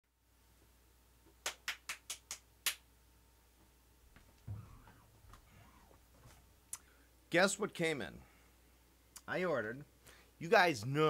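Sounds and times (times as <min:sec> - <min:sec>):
low thump: 0:04.4 - 0:06.4.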